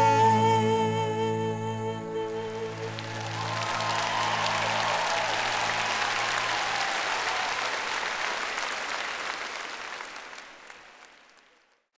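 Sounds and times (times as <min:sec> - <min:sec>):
audience applauding: 0:02.4 - 0:12.0.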